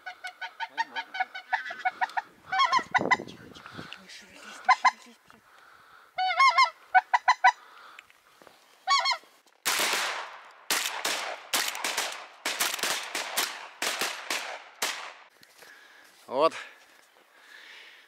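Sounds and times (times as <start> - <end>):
geese honking: 0.0 - 7.9, 8.8 - 9.3.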